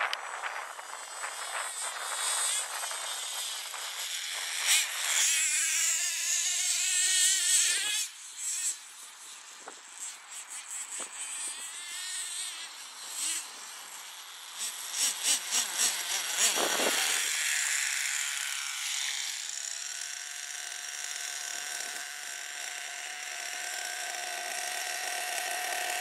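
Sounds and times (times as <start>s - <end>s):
model car engines buzzing: 0.0s - 26.0s.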